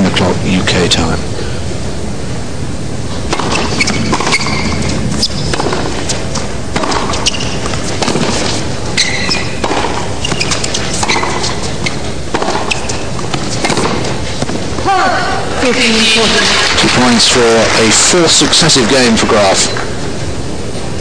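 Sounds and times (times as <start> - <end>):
racket hitting tennis ball: 3.3 - 14.9
sneaker squeaks: 3.4 - 14.4
crowd noise: 14.4 - 20.3.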